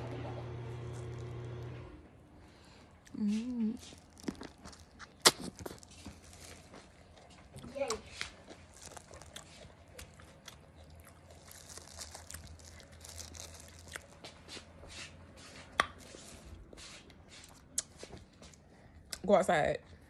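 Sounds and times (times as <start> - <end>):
close-up chewing: 2.5 - 14.9.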